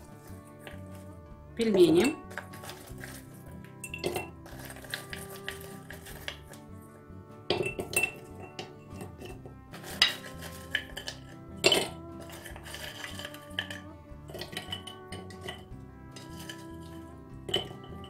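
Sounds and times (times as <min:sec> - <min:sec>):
dumplings knocking into clay pots: 0:00.0 - 0:01.0, 0:02.1 - 0:06.7, 0:07.4 - 0:18.0
background music with sustained notes: 0:00.0 - 0:18.0.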